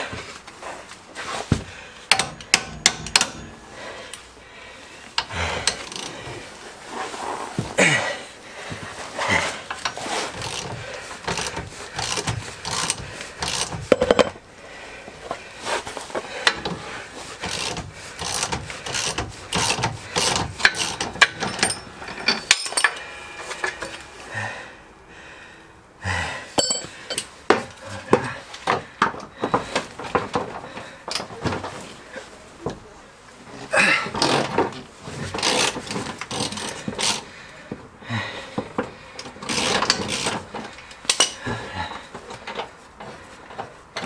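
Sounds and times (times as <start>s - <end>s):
hand tools clinking on metal: 20.2s - 24.0s, 26.6s - 27.3s.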